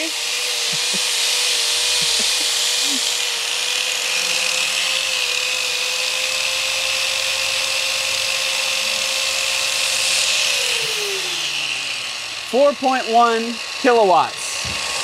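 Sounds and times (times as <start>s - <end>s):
angle grinder whine: 0.0s - 15.0s
electric drill whine: 0.0s - 15.0s
heat gun and hair dryer hiss: 0.0s - 15.0s.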